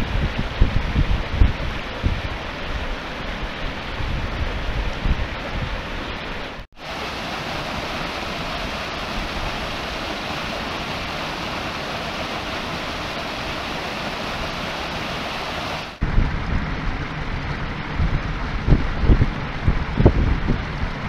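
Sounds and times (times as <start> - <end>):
low water rumble: 0.0 - 21.0
waterfall splashing into pool: 6.7 - 21.0.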